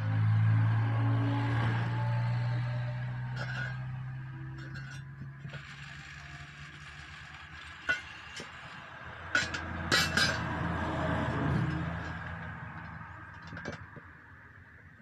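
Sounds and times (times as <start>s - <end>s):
metal ring clinking against rim: 2.7s - 14.0s.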